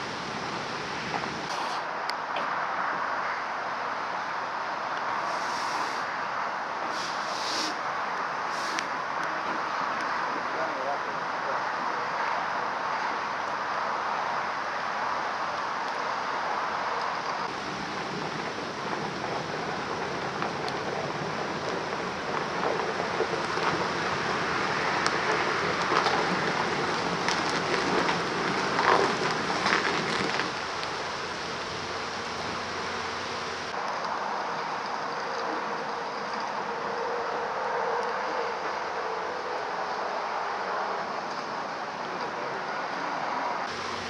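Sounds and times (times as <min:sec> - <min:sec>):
truck engine running: 0:17.5 - 0:33.8, 0:43.7 - 0:44.0.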